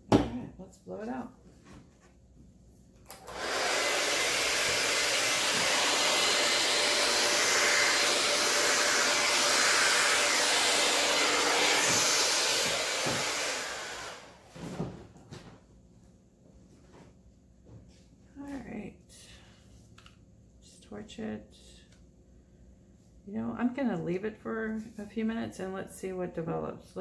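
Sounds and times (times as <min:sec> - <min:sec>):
hair dryer blowing air: 0:03.1 - 0:14.4.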